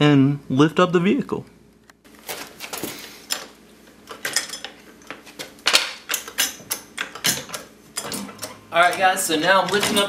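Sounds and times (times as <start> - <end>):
floor jack clanking and creaking: 2.3 - 10.0.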